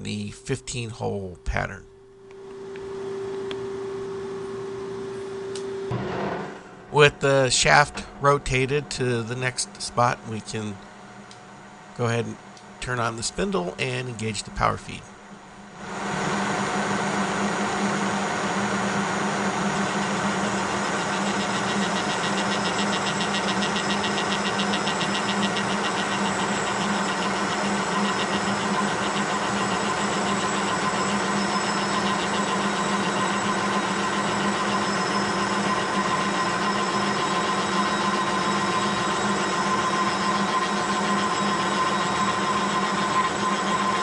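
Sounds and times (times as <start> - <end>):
milling machine geared hum: 2.2 - 44.0
milling cutter cutting: 20.0 - 44.0.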